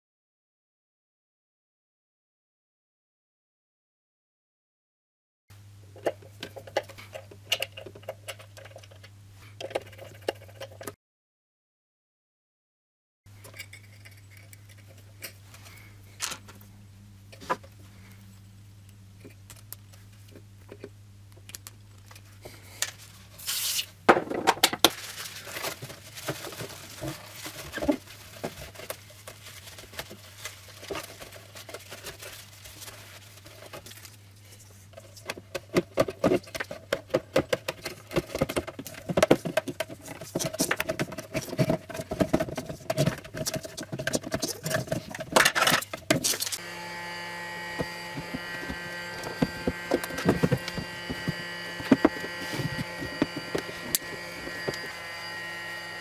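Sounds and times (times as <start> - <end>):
faint steady hum: 13.3 - 56.0
small clicks and taps of parts: 19.2 - 22.2.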